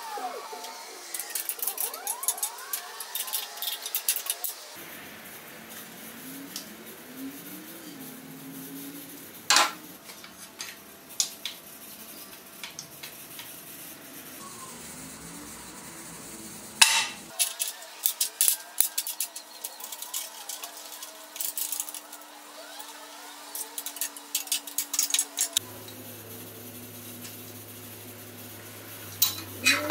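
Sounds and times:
metal parts clinking: 0:01.2 - 0:04.6, 0:16.9 - 0:22.2, 0:23.5 - 0:25.6.

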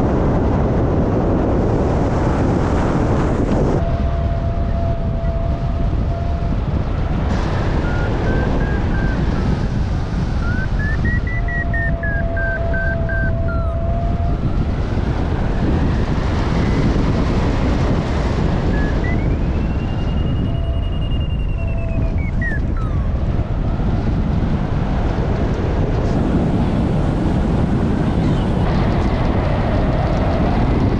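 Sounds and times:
wind rushing over microphone: 0:00.0 - 0:30.9
variometer low tone: 0:03.5 - 0:30.9
variometer beeping: 0:03.8 - 0:09.6, 0:10.3 - 0:14.6, 0:18.6 - 0:23.9.

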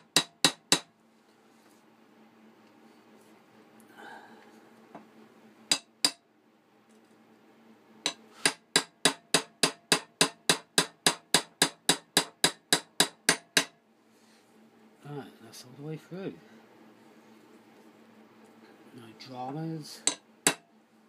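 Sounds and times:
small hammer tapping a pin: 0:00.1 - 0:00.9, 0:05.7 - 0:06.2, 0:08.0 - 0:13.8, 0:20.0 - 0:20.7.

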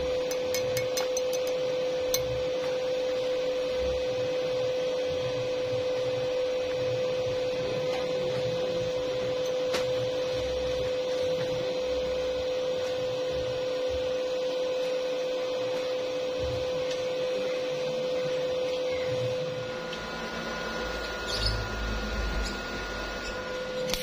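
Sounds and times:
welding equipment humming: 0:00.0 - 0:24.0.

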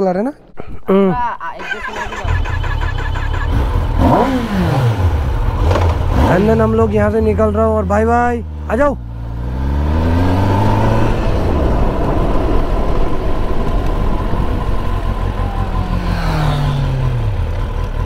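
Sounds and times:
motorcycle engine accelerating: 0:01.6 - 0:18.0
wind noise: 0:09.6 - 0:17.4.

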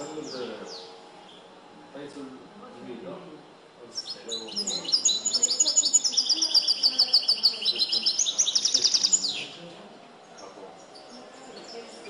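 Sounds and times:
goldfinch singing high notes: 0:03.9 - 0:09.6.

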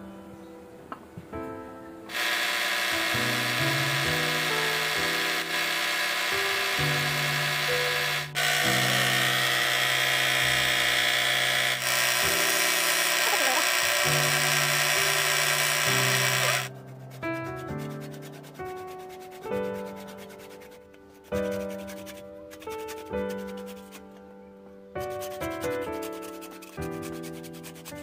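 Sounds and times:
slow piano-like background music: 0:00.0 - 0:02.1, 0:02.8 - 0:13.1, 0:16.7 - 0:28.0
wood lathe scraping hiss: 0:02.1 - 0:16.7.

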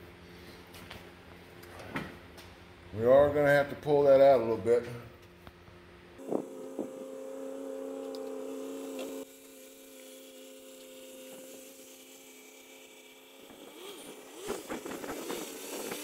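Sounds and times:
steady multi-pitch hum: 0:05.5 - 0:16.0.

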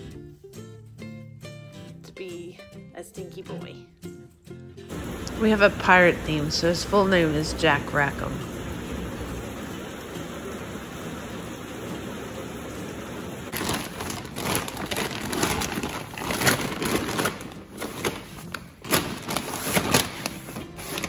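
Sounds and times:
plastic bag crinkling: 0:13.5 - 0:21.0.

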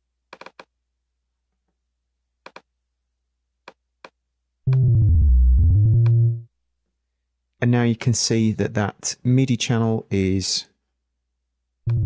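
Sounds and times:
synth bass note: 0:04.7 - 0:06.5.

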